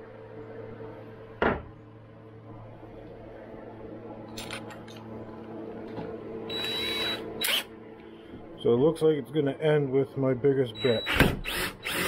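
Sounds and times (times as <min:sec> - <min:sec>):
low electrical hum: 0:00.0 - 0:12.0
knock on workbench: 0:01.4 - 0:01.7
cordless drill whirring: 0:06.5 - 0:07.7, 0:10.8 - 0:12.0.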